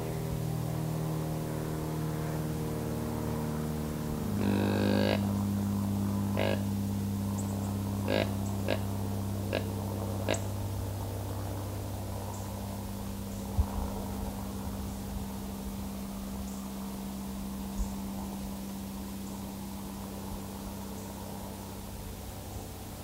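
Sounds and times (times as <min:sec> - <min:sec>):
steady low hum: 0:00.0 - 0:23.0
faint woodland background: 0:03.6 - 0:23.0.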